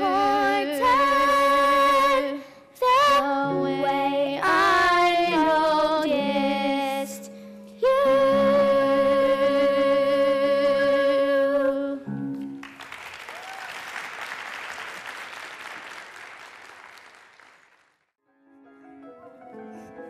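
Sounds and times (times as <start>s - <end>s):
girl singing with vibrato: 0.0s - 12.1s
soft musical accompaniment: 0.0s - 12.8s, 18.3s - 20.0s
audience applauding: 12.4s - 18.1s.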